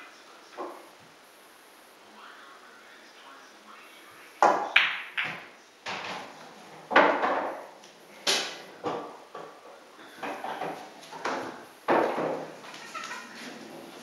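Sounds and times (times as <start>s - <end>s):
pool balls clacking: 4.4s - 14.0s.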